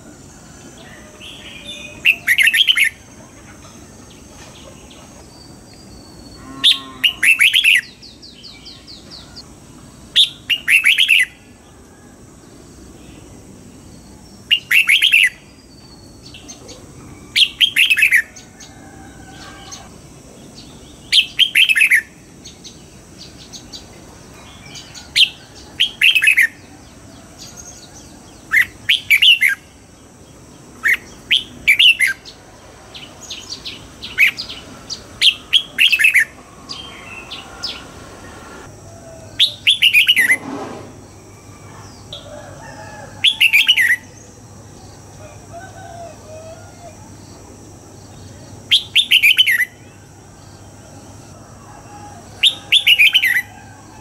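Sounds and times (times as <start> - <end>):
bird singing whistled notes: 10.2 - 11.4, 14.0 - 18.4, 21.1 - 22.1, 28.4 - 29.6, 33.3 - 37.9, 39.3 - 40.4, 48.7 - 49.8, 52.4 - 53.6.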